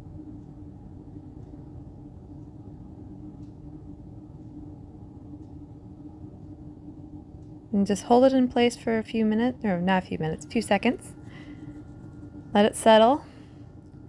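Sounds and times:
room hum and rumble: 0.0 - 14.0.

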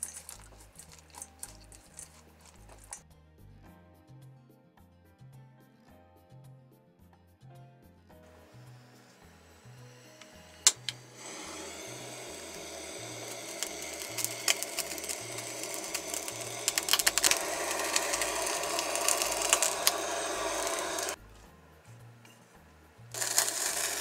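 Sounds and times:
chicken skin crackling and popping: 0.0 - 3.0, 12.0 - 21.2
blowtorch flame hissing: 8.3 - 21.2, 23.2 - 24.0
blowtorch clicking alight: 8.6 - 21.2, 23.1 - 24.0.

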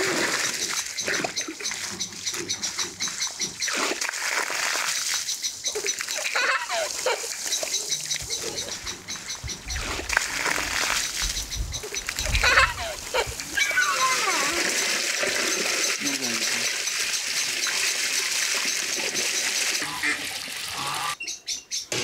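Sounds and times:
garden hose water spraying: 0.0 - 21.2
child squealing: 12.4 - 14.8.

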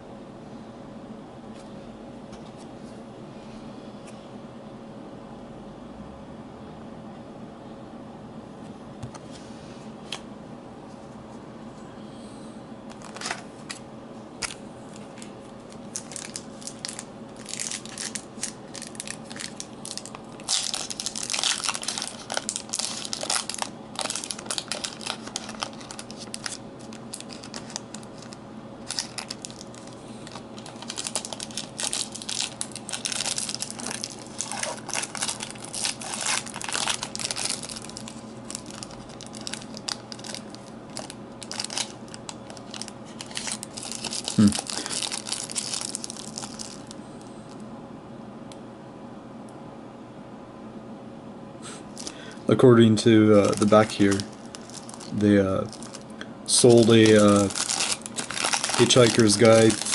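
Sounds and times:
foil wrapper crinkling: 12.9 - 13.5, 14.4 - 47.0, 51.9 - 52.4, 53.2 - 59.9.

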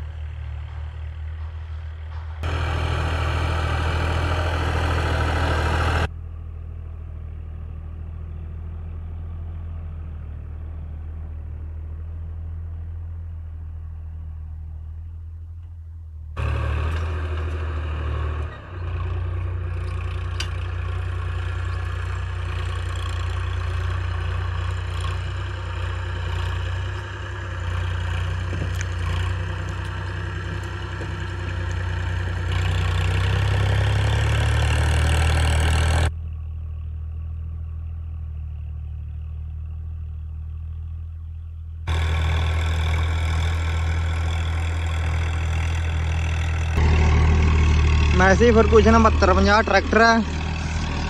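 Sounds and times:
tractor diesel engine under load: 0.0 - 51.0.

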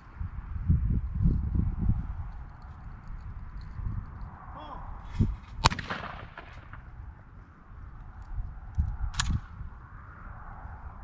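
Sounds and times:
steady low rumble: 0.0 - 11.0
shotgun shot: 5.6 - 6.9.

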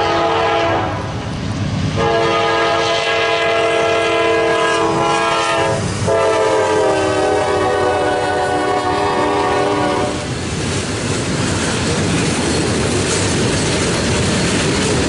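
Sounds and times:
locomotive air horn chord: 0.0 - 1.1, 2.0 - 10.3
low rumble of locomotives: 0.0 - 15.0.

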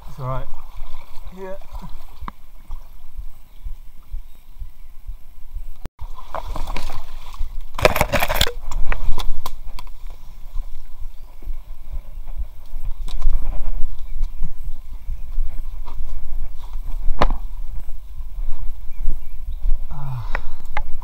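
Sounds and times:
water sloshing and splashing: 0.0 - 3.2, 6.0 - 9.3
knocks and rustles: 7.7 - 9.4.

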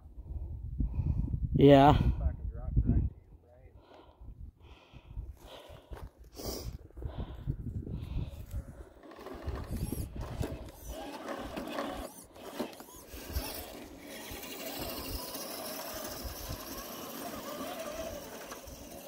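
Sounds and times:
electric motor whining: 8.9 - 19.0
tyres scraping on stone: 9.0 - 19.0.

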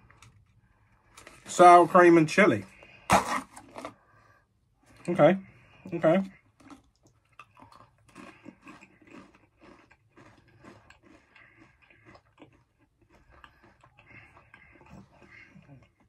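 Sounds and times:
crisp crunching: 6.6 - 16.0.

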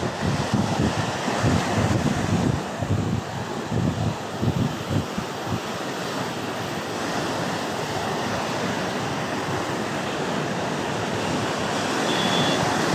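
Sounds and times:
surf washing over rocks: 0.0 - 12.9.

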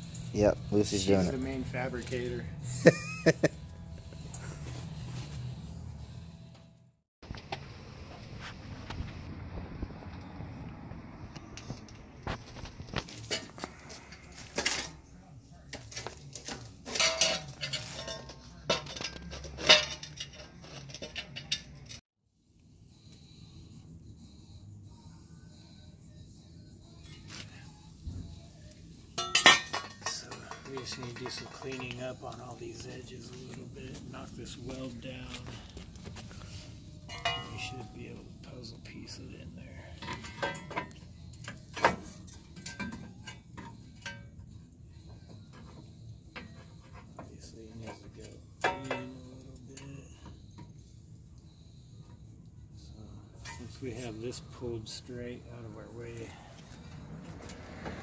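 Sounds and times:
metal clamps clanking: 16.0 - 22.0.

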